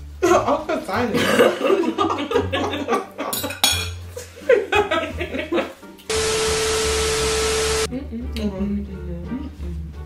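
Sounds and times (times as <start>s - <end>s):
forks clinking against plates: 3.3s - 4.0s
static hiss: 6.1s - 7.9s
steady beep tone: 6.1s - 7.9s.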